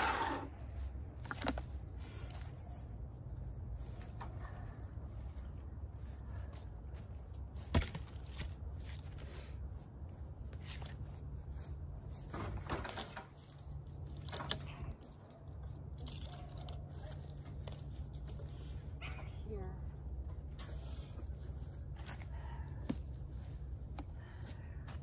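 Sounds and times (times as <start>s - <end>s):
branches rustling and snapping: 12.2s - 18.8s.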